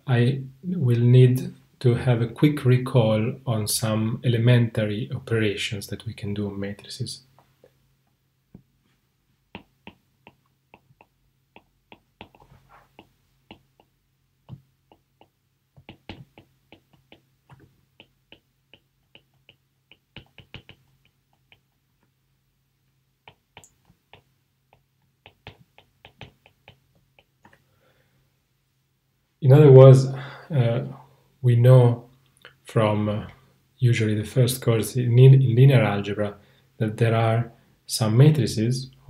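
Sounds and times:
stylus tapping on tablet screen: 9.5s - 22.1s, 23.2s - 27.6s.

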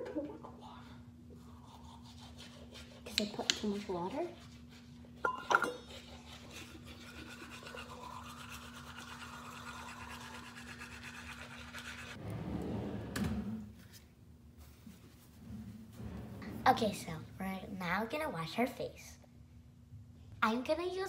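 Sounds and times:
steady low hum: 0.0s - 21.0s
toothbrush scrubbing teeth: 1.3s - 12.2s.

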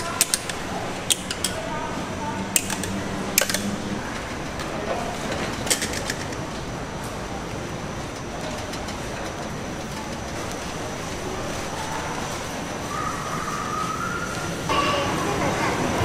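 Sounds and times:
utensils clicking and tapping: 0.0s - 1.8s, 2.5s - 10.7s
market crowd hubbub: 0.0s - 16.0s.

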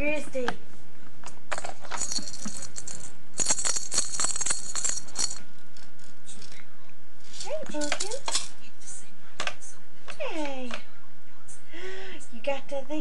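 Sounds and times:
baby's toy jingling and rattling: 1.9s - 6.1s, 7.4s - 8.5s.

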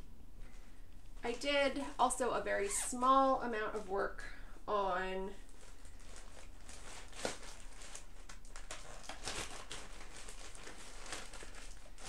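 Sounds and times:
fabric rustling and crinkling: 5.2s - 12.0s.

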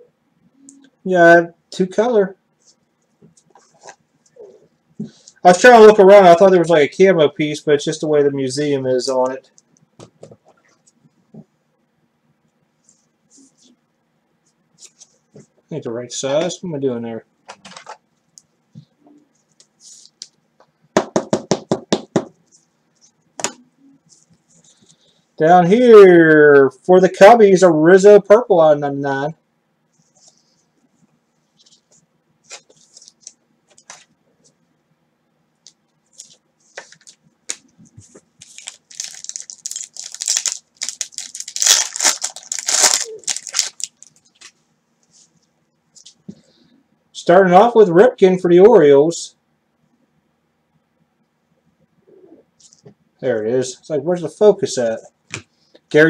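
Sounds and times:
rapid knocking by hand: 21.0s - 22.4s
foil wrapper tearing and crinkling: 38.4s - 44.4s.

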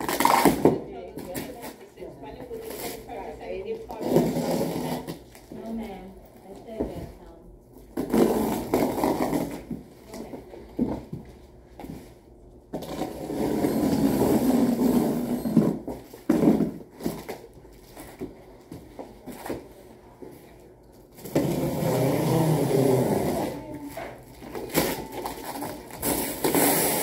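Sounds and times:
cardboard scraping and tearing: 24.7s - 27.0s.

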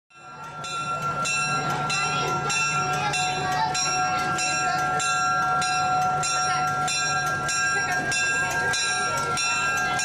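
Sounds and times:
locomotive bell ringing: 0.1s - 10.0s.

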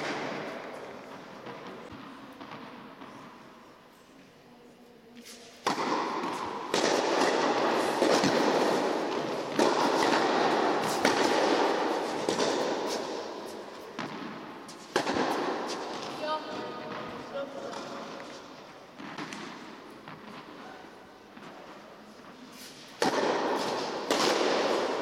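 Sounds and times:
tennis racket strikes: 0.0s - 3.4s, 5.2s - 21.8s, 22.5s - 25.0s
tennis ball bounces: 5.6s - 20.6s, 22.9s - 25.0s.

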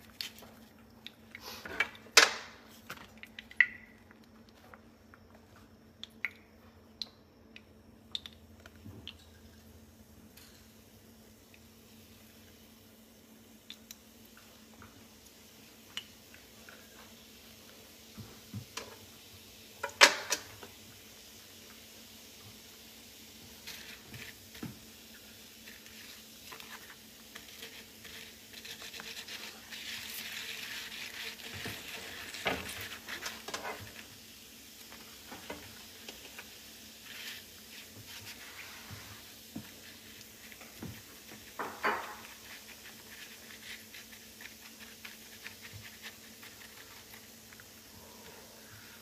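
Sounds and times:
liquid sizzling in a skillet: 10.3s - 48.0s.

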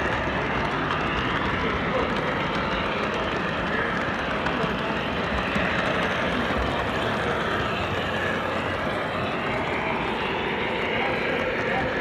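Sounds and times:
model train rolling on track: 0.0s - 12.0s.

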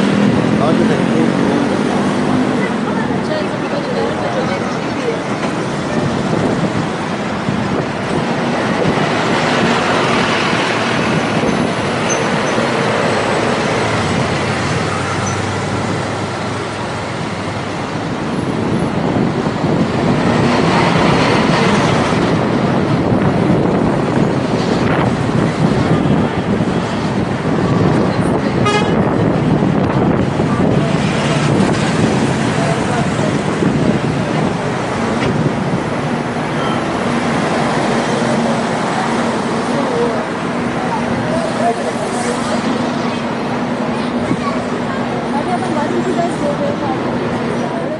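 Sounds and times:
bus engine: 0.0s - 47.9s
city traffic rush: 0.0s - 47.9s.

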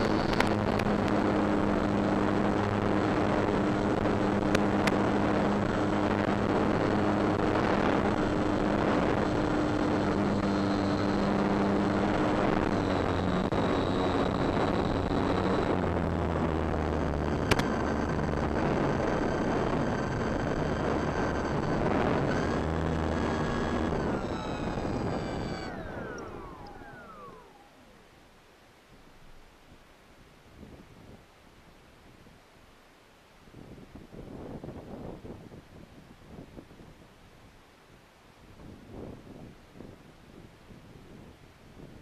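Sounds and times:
sharp clicks: 0.0s - 0.9s, 17.3s - 18.2s, 19.6s - 27.7s
wind rush: 0.0s - 27.9s
electric motor and propeller: 0.0s - 28.2s.

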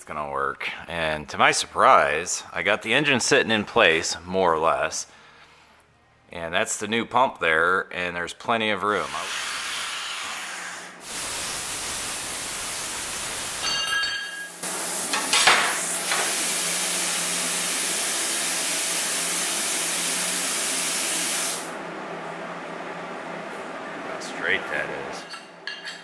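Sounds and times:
loud steady hiss: 11.0s - 13.8s, 14.6s - 21.8s.

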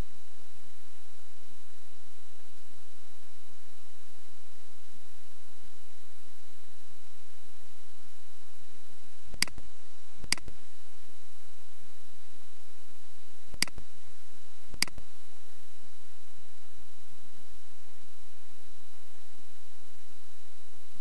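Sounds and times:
background hiss and hum: 0.0s - 21.0s
mouse button clicking: 10.2s - 10.5s, 13.6s - 13.8s, 14.8s - 15.0s.

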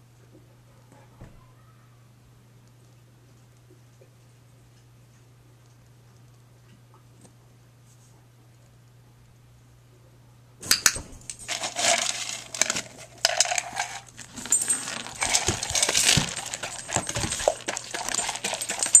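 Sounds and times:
dog crunching dry kibble: 11.2s - 19.0s
plastic bowl clattering: 11.3s - 19.0s.

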